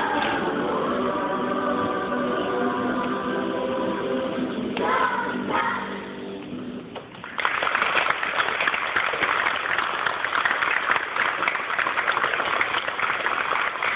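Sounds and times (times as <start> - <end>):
audience applauding: 7.2 - 13.9.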